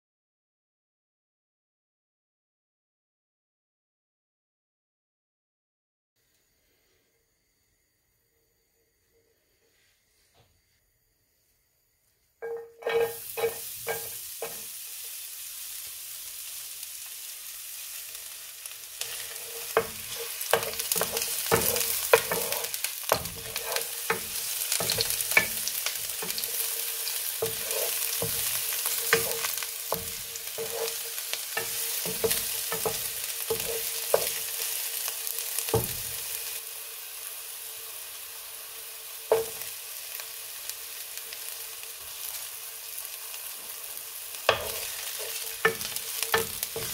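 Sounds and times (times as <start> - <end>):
wooden spoon scraping a pan: 12.4 - 14.7, 19.0 - 36.0, 44.5 - 46.9
onion sizzling in a frying pan: 12.4 - 46.9.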